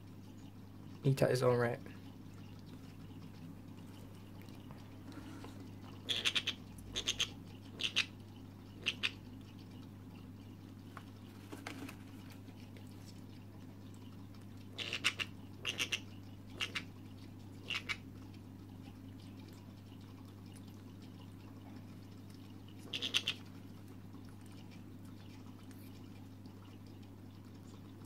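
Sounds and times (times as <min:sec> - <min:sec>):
parrot chick squeaky feeding clicks: 0:06.0 - 0:09.2, 0:14.7 - 0:16.9, 0:17.6 - 0:18.1, 0:22.8 - 0:23.5.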